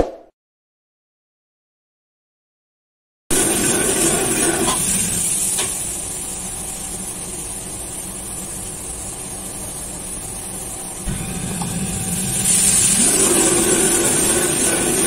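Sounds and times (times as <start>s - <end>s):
extraction hood and burner roar: 3.3s - 15.0s.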